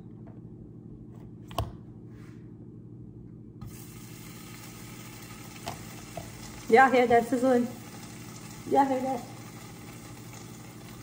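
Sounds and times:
butter sizzling in a frying pan: 0:03.7 - 0:11.0.

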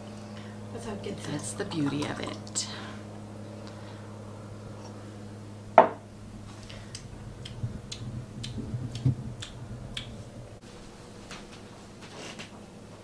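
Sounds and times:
steady low hum: 0:00.0 - 0:13.0
sharp knock on counter: 0:05.8 - 0:06.0.

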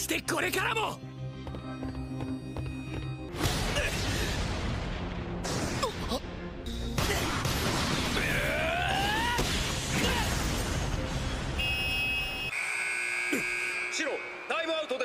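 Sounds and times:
steady high tones: 0:11.6 - 0:15.0.

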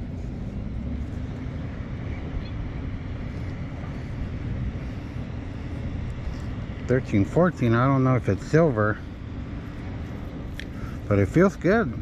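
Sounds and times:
beach ambience rumble: 0:00.0 - 0:12.0.

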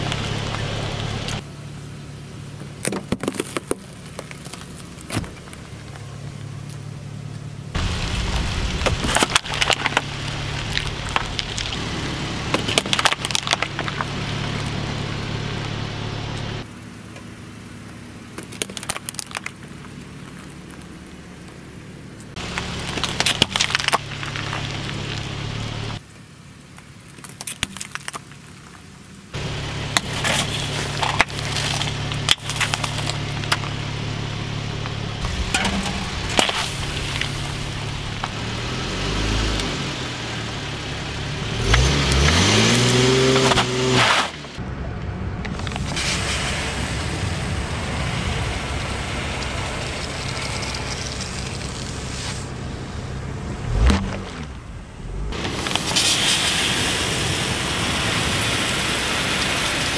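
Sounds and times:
car engine hum: 0:00.0 - 0:59.9
tyre crushing objects: 0:41.6 - 0:44.6, 0:53.7 - 0:54.7.

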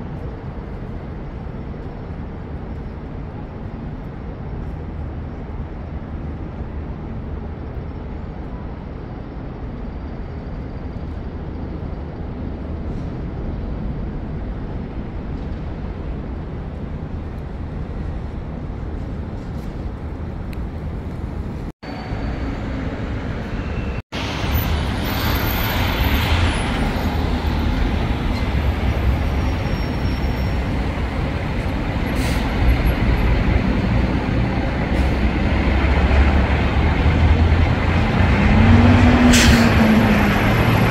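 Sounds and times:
city traffic rumble: 0:00.0 - 0:40.9
rising and falling engine tone: 0:31.0 - 0:40.9.

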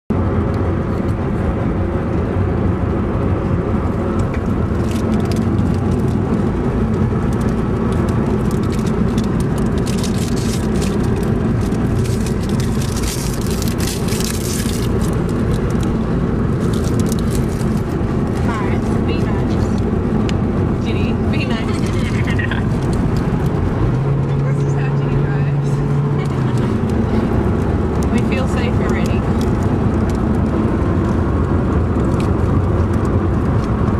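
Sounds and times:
car engine and road noise: 0:00.1 - 0:33.9
clicks and crackles: 0:04.1 - 0:18.5, 0:21.7 - 0:24.0, 0:26.1 - 0:33.9.

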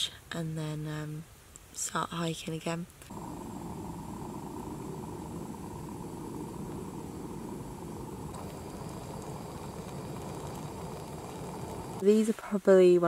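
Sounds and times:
camping stove burner rushing: 0:03.1 - 0:12.0.

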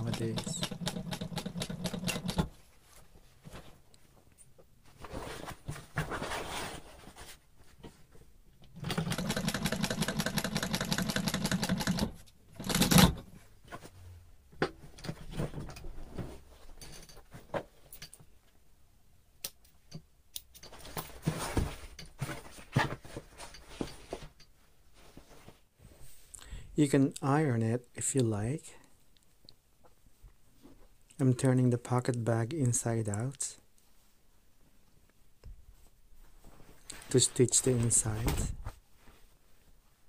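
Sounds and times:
industrial sewing machine stitching: 0:00.0 - 0:02.5, 0:08.8 - 0:13.2.

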